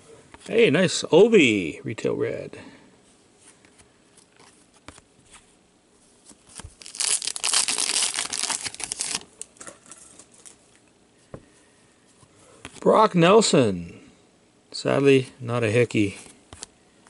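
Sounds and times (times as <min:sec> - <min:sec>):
foil pack tearing: 0:06.7 - 0:10.6.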